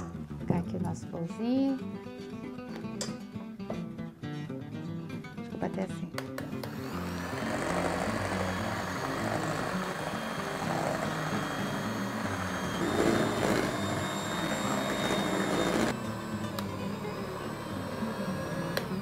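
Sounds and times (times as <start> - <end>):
electric hand mixer running: 6.5 - 19.0.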